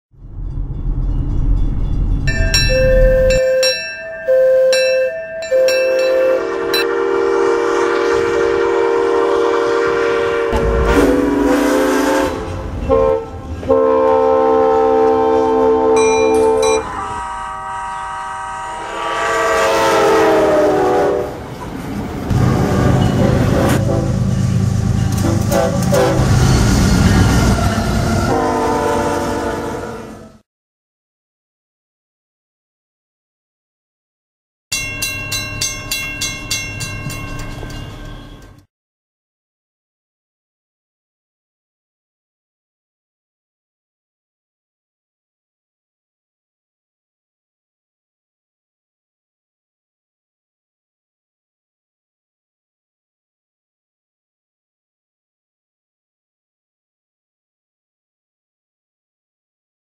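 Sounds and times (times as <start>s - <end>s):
train rumble: 0.2s - 3.9s, 4.8s - 17.7s, 18.9s - 30.4s
locomotive air horn blasts: 4.3s - 21.5s, 22.3s - 30.4s.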